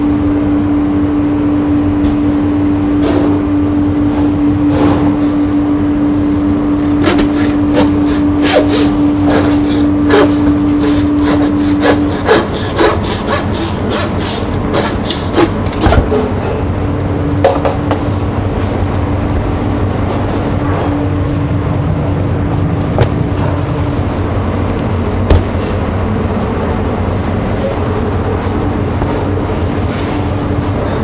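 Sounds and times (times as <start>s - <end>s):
steady hum: 0.0s - 31.0s
hand saw cutting bone: 6.8s - 15.8s.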